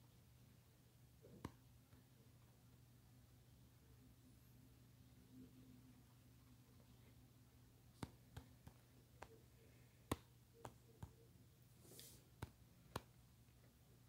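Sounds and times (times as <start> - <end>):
low steady hum: 0.0 - 14.0
fingertips tapping touchscreen: 7.9 - 11.4, 12.0 - 13.2.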